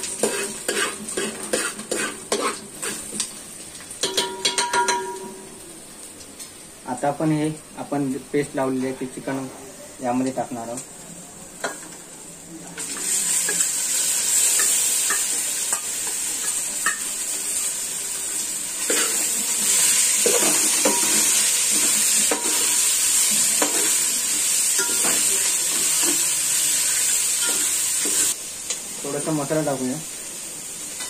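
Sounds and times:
chicken sizzling in hot oil: 0:00.0 - 0:09.5, 0:12.1 - 0:31.0
steel spoon scraping a pot: 0:00.2 - 0:03.0.

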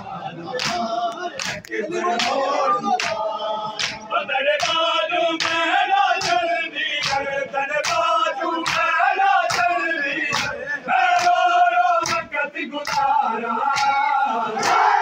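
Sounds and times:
men chanting in unison: 0:00.0 - 0:15.0.

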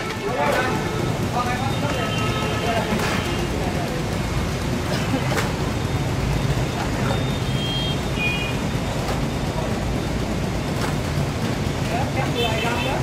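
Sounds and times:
road traffic rumble: 0:00.0 - 0:13.0
short high-pitched beeps: 0:05.9 - 0:09.5.

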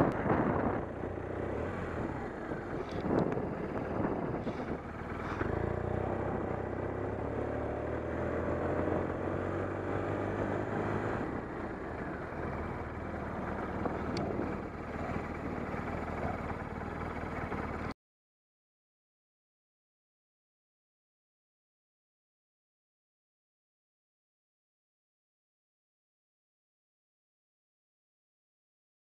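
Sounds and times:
motorcycle engine accelerating: 0:00.0 - 0:18.0
wind and road noise: 0:00.0 - 0:18.0.

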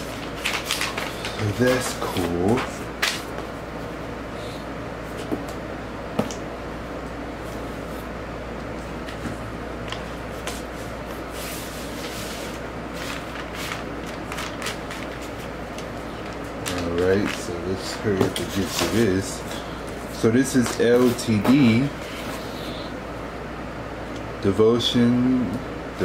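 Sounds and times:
paper rustling: 0:00.0 - 0:03.4, 0:09.8 - 0:19.6.

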